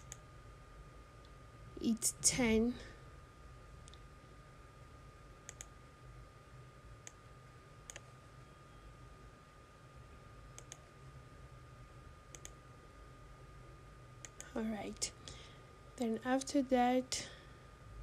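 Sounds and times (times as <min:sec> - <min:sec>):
computer mouse clicks: 0:00.0 - 0:00.2, 0:05.4 - 0:05.8, 0:07.9 - 0:08.1, 0:10.5 - 0:10.9, 0:12.3 - 0:12.6, 0:14.2 - 0:14.5.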